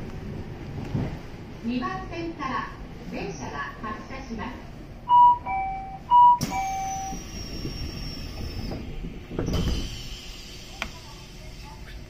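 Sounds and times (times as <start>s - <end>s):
sliding doors closing thud: 8.5s - 10.1s.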